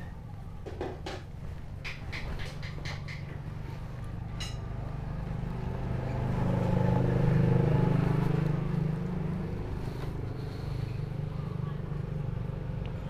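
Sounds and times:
vehicle engine passing by: 0:02.4 - 0:13.0.

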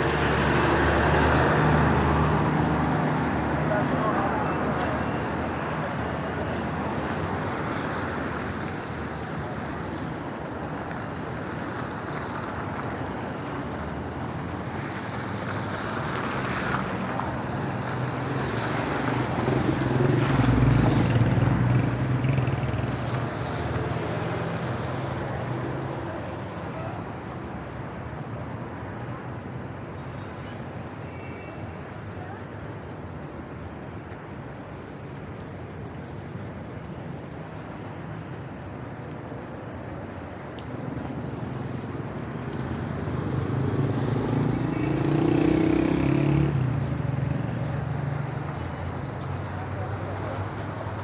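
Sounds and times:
traffic on wet road: 0:00.0 - 0:51.0
car passing close: 0:42.2 - 0:50.7.

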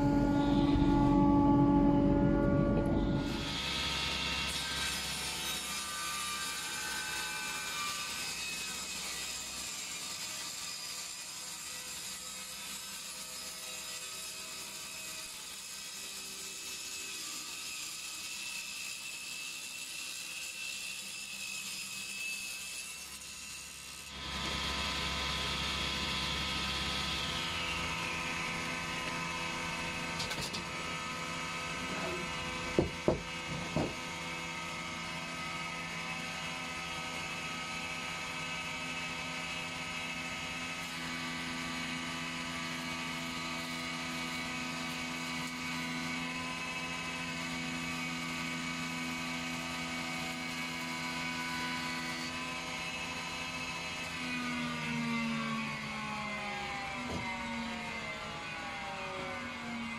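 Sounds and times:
woodworking machinery motor hum: 0:00.0 - 0:05.3, 0:24.1 - 0:47.8
table saw whine: 0:00.0 - 0:59.9
sharp knocks: 0:32.8 - 0:34.0.

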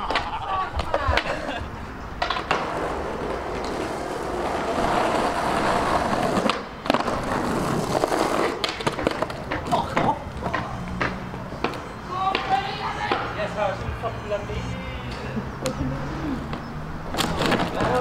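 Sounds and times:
skateboard clacks: 0:00.0 - 0:13.3
skateboard wheels on rough asphalt: 0:00.0 - 0:13.5, 0:16.3 - 0:18.0.

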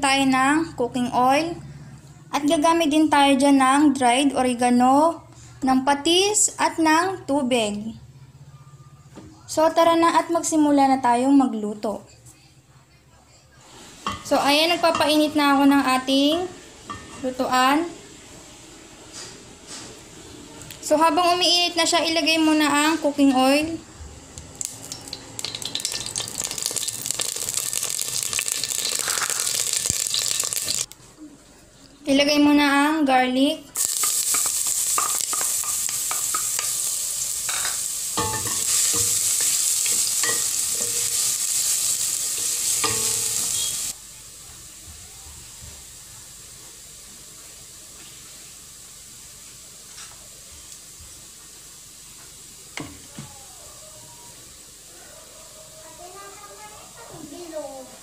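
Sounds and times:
oil sizzling and crackling: 0:24.4 - 0:31.0, 0:33.7 - 0:53.1.

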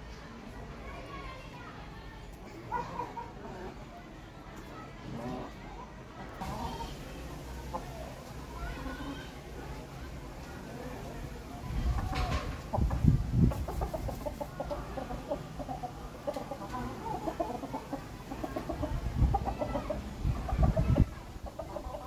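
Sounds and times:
chickens clucking: 0:06.4 - 0:22.0.

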